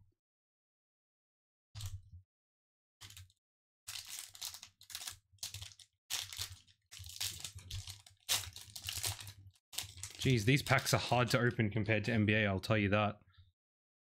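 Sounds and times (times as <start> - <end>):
foil wrapper crinkling and tearing: 3.9 - 11.0.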